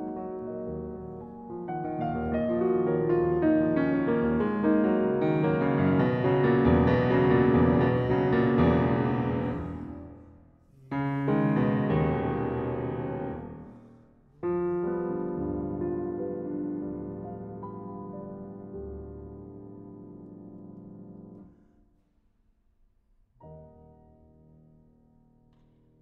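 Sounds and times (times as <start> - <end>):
slow piano chords: 0.0 - 21.5.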